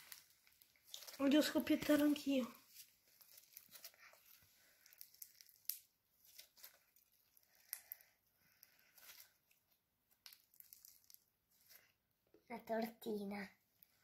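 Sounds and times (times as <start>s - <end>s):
slime crackling and popping: 0.0s - 2.2s, 3.2s - 11.8s.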